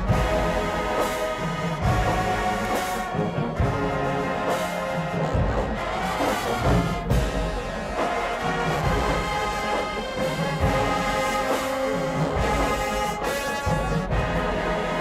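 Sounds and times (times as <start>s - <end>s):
brass section playing: 0.0s - 15.0s
low drum beats: 0.0s - 15.0s.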